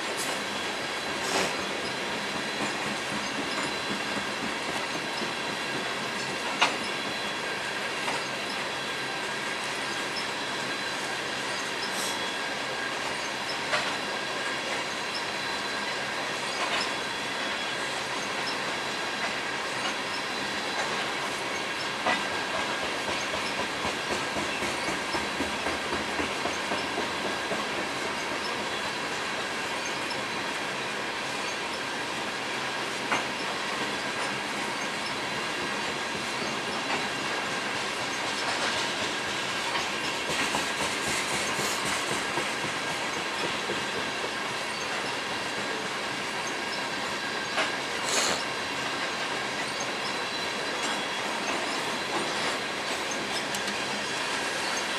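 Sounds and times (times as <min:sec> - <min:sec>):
train wheels rattling on rail: 0:00.0 - 0:54.9
high wheel squeal: 0:00.2 - 0:25.2, 0:32.6 - 0:54.9
wheel clicks over rail joints: 0:38.0 - 0:44.9.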